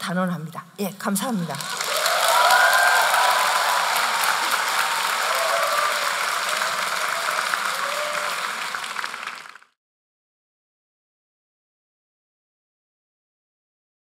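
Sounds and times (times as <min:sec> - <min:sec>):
large audience applauding: 0:01.3 - 0:09.8.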